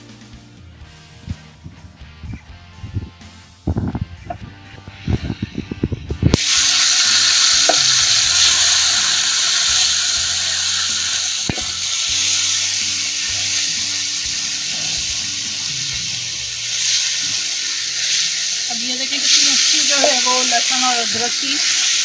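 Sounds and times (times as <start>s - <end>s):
guitar music: 0.0s - 22.0s
food sizzling in hot oil: 6.3s - 22.0s.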